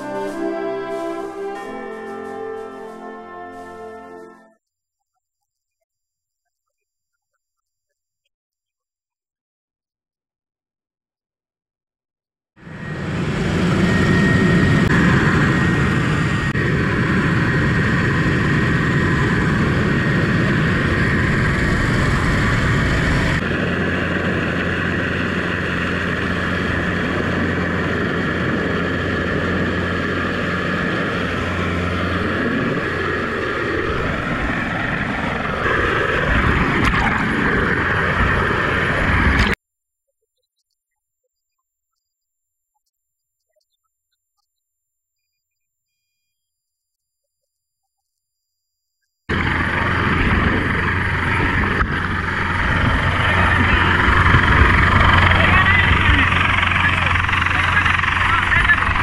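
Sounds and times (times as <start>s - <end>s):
helicopter rotor and engine drone: 0.0s - 4.4s, 12.6s - 39.6s, 49.3s - 59.0s
wind rush: 12.9s - 39.6s, 49.3s - 58.2s.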